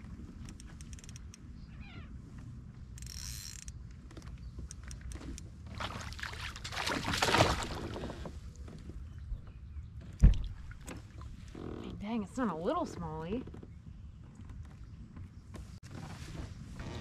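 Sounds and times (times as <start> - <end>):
small clicks: 0.4 - 1.5, 2.3 - 5.5
fish splashing at water surface: 5.8 - 8.0
low thump against boat: 7.1 - 11.3.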